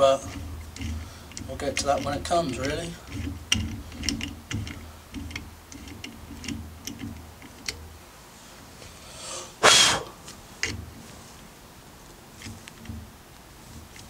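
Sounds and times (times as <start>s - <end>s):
tap wrench clicking in metal: 0.8s - 7.8s
short loud whoosh: 9.6s - 10.2s.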